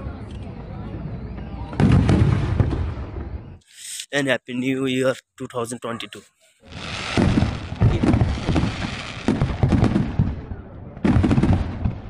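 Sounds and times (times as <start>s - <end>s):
fireworks booming and crackling: 1.0s - 3.6s, 6.6s - 12.0s.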